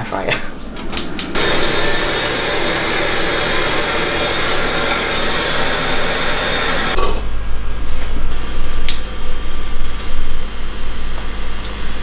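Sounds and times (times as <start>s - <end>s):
kitchen fan rushing: 0.0s - 8.8s.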